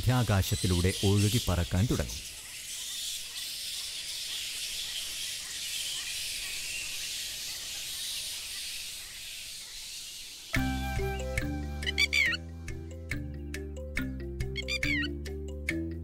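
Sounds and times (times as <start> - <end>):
steady high hiss: 0.0 - 12.2.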